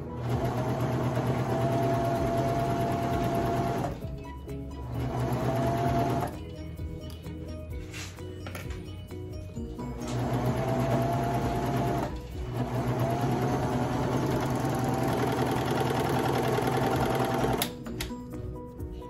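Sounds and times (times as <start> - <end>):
serger motor stitching: 10.0 - 17.7.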